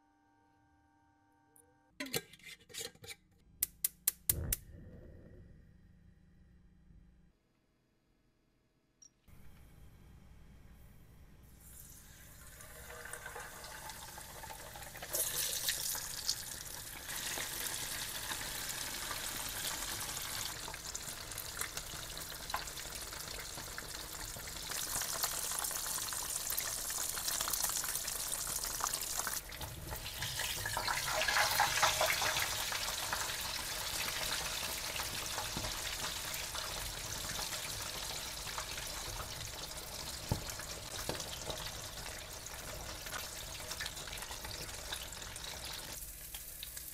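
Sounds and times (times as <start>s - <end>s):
fish sizzling in hot oil: 11.9s - 46.9s.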